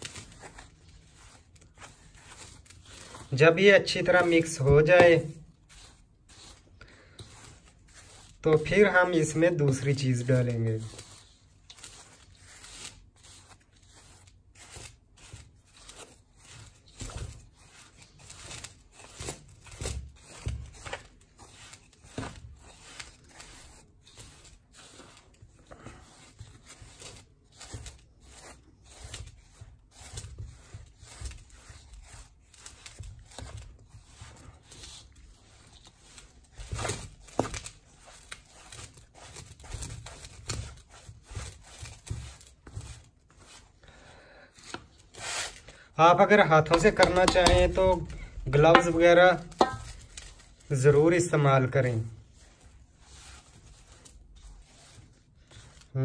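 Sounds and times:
powder scraping in metal bowl: 0.0 - 32.8, 45.2 - 50.1.

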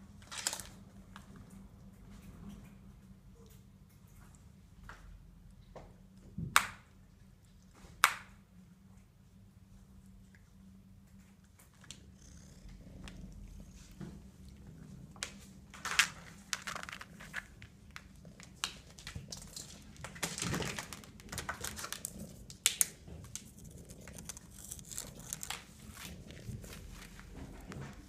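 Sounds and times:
cat scratching and scuffling: 13.0 - 28.0.

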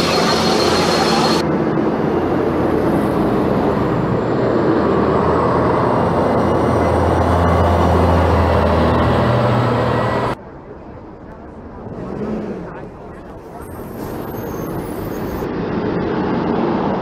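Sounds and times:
bus diesel engine passing by: 0.0 - 17.0.

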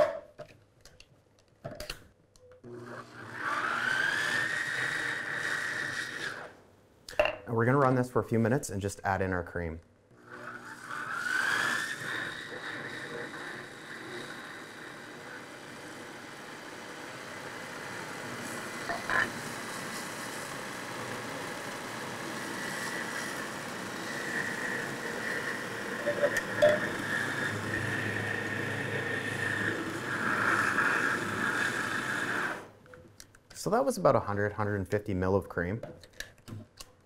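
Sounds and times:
food processor motor whine: 2.6 - 6.6, 10.1 - 32.8.

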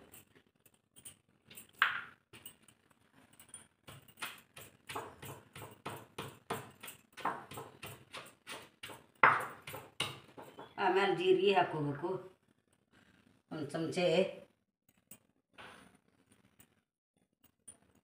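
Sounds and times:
stone pestle pounding in mortar: 3.9 - 10.8.

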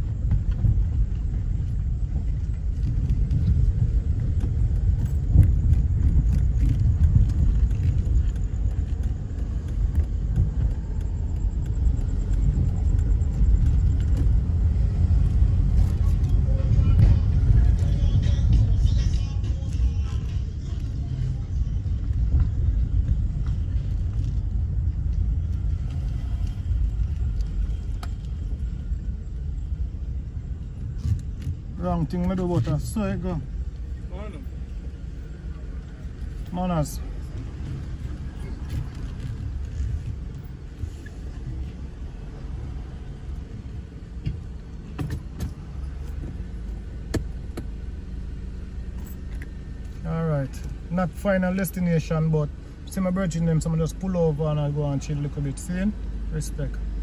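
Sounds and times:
car engine rumble: 0.0 - 57.0
road noise: 0.0 - 57.0.

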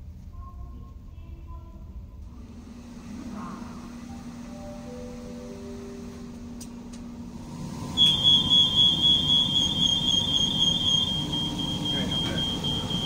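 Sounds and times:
low hum of train carriage: 0.0 - 13.0
high electronic warning tone: 8.0 - 13.0.

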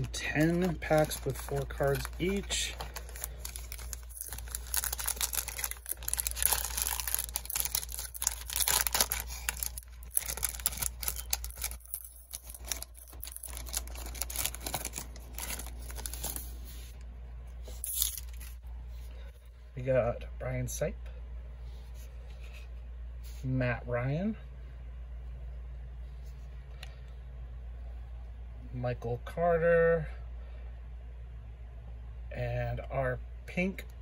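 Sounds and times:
foil wrapper tearing and crinkling: 0.0 - 16.6, 17.8 - 18.6.

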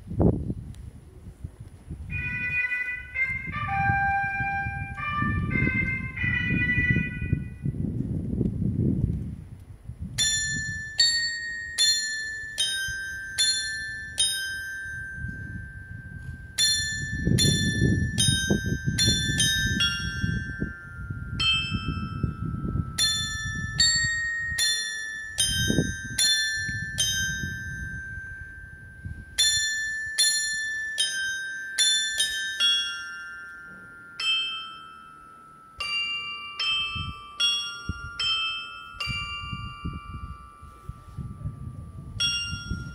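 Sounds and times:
carillon bells playing a melody: 10.2 - 42.9.

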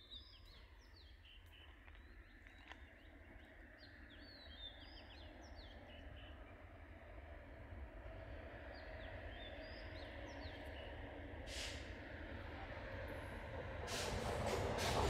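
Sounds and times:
faint birdsong chirps: 0.0 - 7.1, 8.7 - 11.4.

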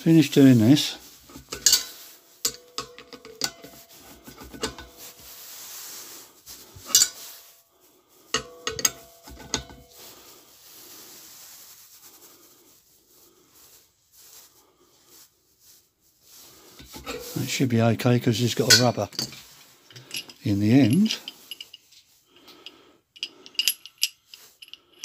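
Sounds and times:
spanner rubbing on metal: 0.4 - 5.8, 6.5 - 7.4, 16.8 - 17.6, 18.4 - 21.9, 23.2 - 25.0
spanner clinking on metal fittings: 1.3 - 5.1, 6.8 - 7.4, 8.3 - 10.0, 16.8 - 17.6, 18.4 - 25.0.

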